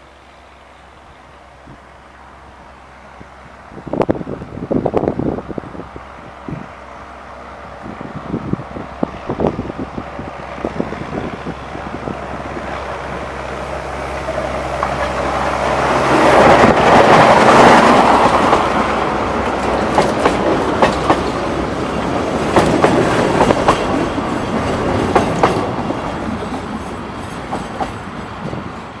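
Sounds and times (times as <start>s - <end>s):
diesel locomotive passing: 0.0s - 29.0s
train wheels clicking over rail joints: 14.0s - 29.0s.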